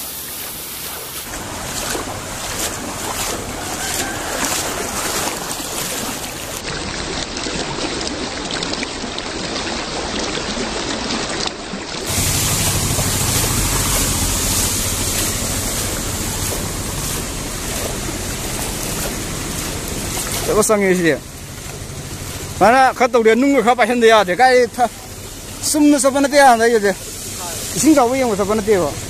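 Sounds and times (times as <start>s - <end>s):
floodwater splashing across road: 0.0s - 29.0s
low rumble: 12.1s - 25.8s.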